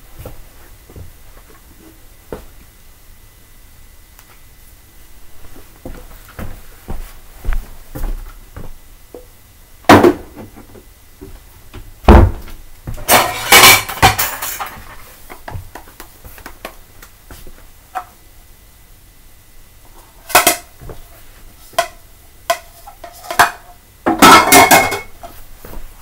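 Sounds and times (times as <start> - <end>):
dishes clattering: 13.0 - 15.0, 21.8 - 25.2
dishes clinking and knocking: 13.0 - 15.0, 20.3 - 20.7, 21.8 - 25.2.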